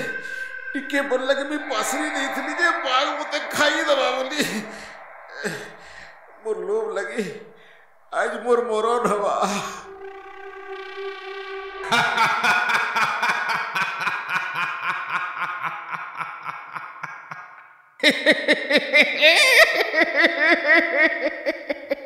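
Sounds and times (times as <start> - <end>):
man laughing in cartoon voice: 11.9 - 22.0.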